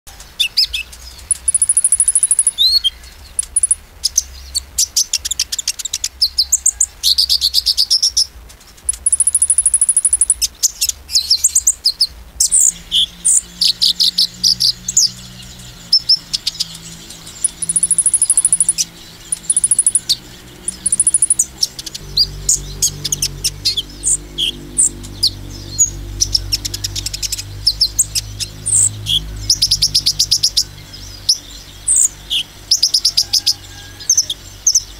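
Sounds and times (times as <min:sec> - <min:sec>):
sunbird singing high chirps and trills: 0:00.1 - 0:34.9
low steady hum: 0:10.0 - 0:32.8.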